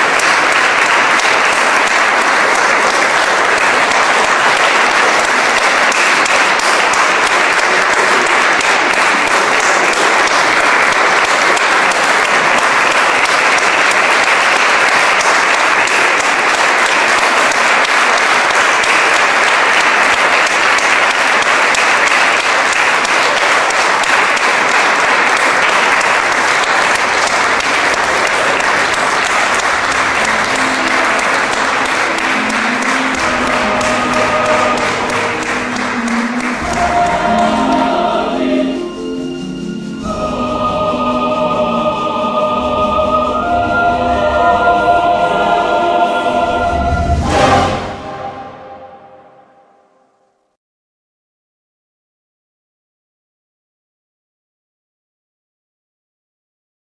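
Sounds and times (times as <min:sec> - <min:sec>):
audience applauding: 0:00.0 - 0:49.5.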